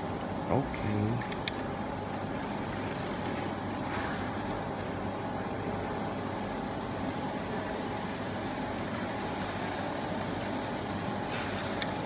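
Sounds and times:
background hum and hiss: 0:00.0 - 0:12.0.

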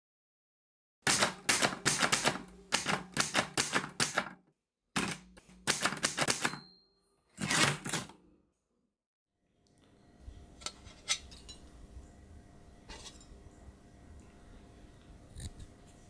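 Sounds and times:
typewriter bell ding: 0:06.2 - 0:07.0.

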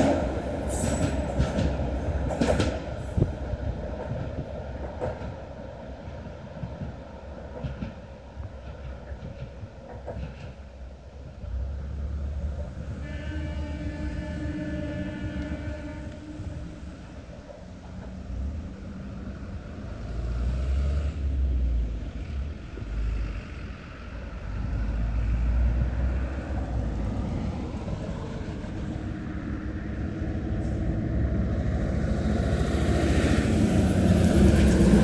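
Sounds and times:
vehicle approaching: 0:16.5 - 0:35.0.

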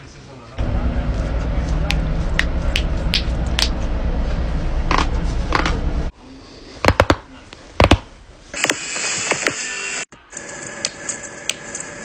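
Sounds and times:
steady low rumble: 0:00.6 - 0:06.1.

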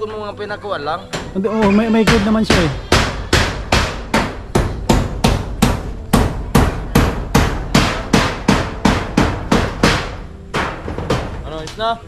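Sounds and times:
hammer driving nails: 0:01.1 - 0:11.5.

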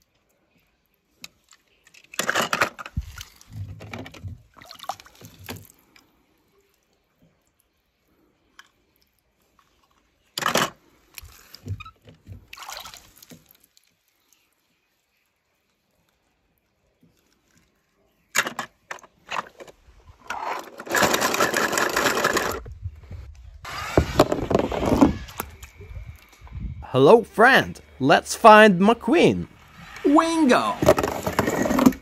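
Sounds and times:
water splashing in plastic tub: 0:04.4 - 0:05.8, 0:12.4 - 0:13.7.

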